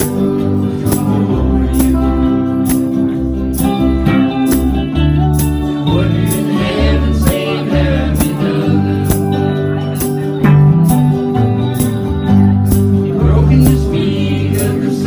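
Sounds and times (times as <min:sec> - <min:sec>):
man singing: 0:00.0 - 0:02.6, 0:05.7 - 0:09.9, 0:13.0 - 0:15.0
acoustic guitars strumming: 0:00.0 - 0:15.0.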